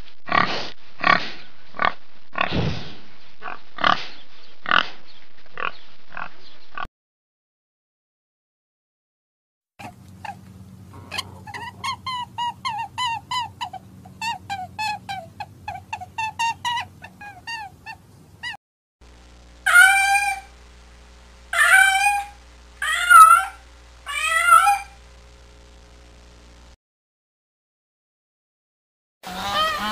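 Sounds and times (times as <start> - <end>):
high squeaky calls: 11.0 - 18.6, 19.7 - 20.5, 21.6 - 25.0, 29.3 - 29.9
cat meowing: 21.6 - 25.0.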